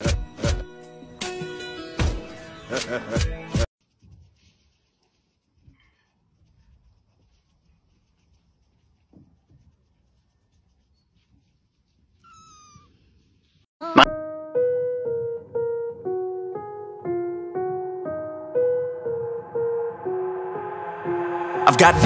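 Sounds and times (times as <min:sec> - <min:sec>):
kitten mewing: 0:12.2 - 0:13.0
piano melody: 0:14.0 - 0:22.0.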